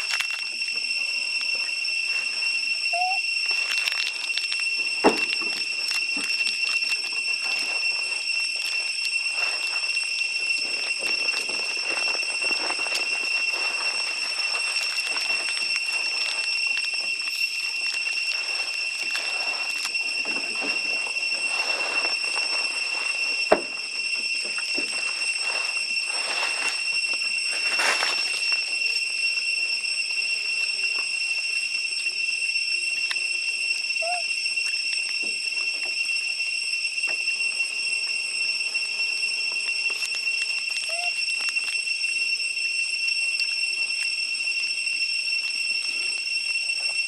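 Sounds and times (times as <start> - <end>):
cicadas droning: 0.0 - 47.0
rustling: 1.4 - 29.0.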